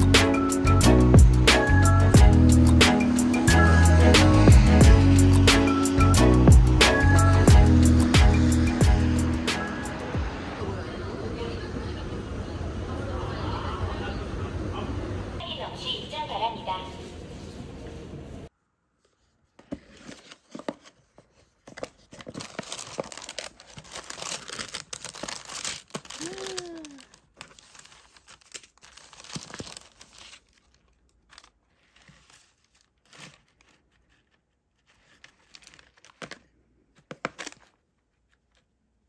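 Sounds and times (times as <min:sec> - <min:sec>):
tissue paper rustling: 0:19.0 - 0:36.5.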